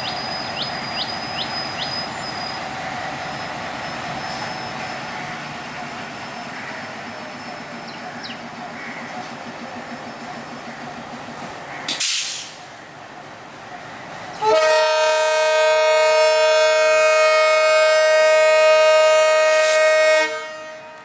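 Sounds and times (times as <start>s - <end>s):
locomotive engine rumbling: 0.0s - 21.0s
short hiss: 12.0s - 12.6s
locomotive horn blast: 14.4s - 21.0s.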